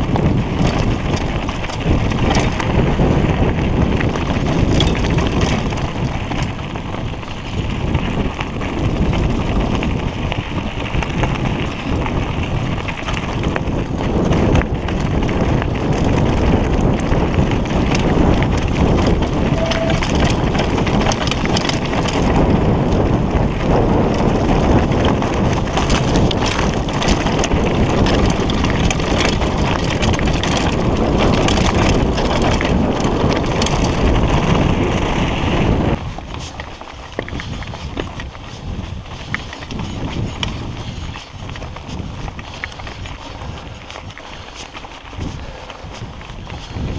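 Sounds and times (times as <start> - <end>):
bike rattling: 0.0 - 46.9
wind rush on microphone: 0.0 - 46.9
tyres crunching on stones: 36.0 - 46.9.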